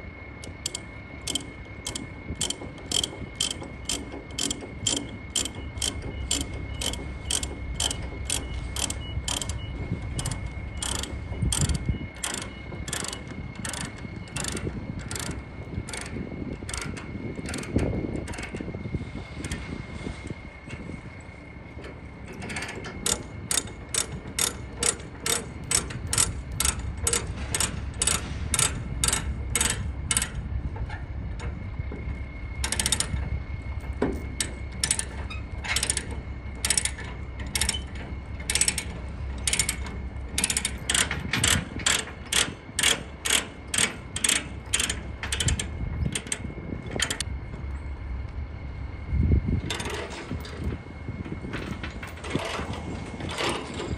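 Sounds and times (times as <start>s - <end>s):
ratchet chain binder clicking: 0.4s - 18.6s, 22.3s - 30.4s, 32.6s - 33.2s, 33.8s - 47.3s.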